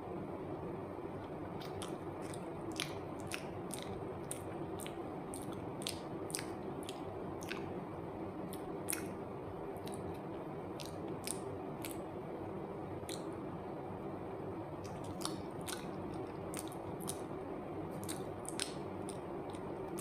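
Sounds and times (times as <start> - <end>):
steady background hiss: 0.0 - 20.0
wet chewing mouth clicks: 1.6 - 7.8, 8.5 - 9.2, 9.8 - 10.2, 10.8 - 12.1, 13.0 - 13.3, 14.8 - 17.3, 18.0 - 20.0.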